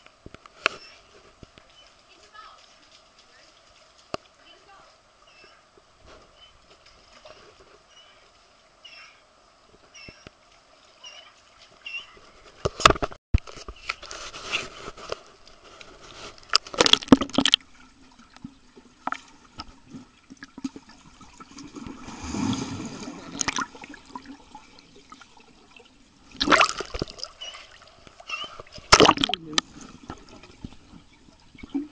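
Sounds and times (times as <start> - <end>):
water sloshing and splashing: 9.7 - 31.9.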